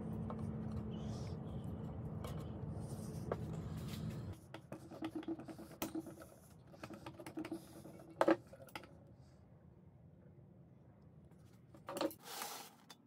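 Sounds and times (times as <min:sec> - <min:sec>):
low steady hum: 0:00.0 - 0:04.5.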